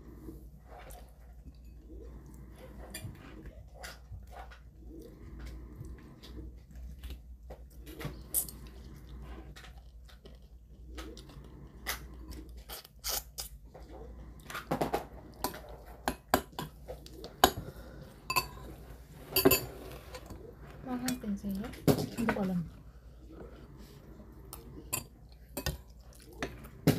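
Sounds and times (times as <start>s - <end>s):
chewing: 0.2s - 20.9s, 22.7s - 26.9s.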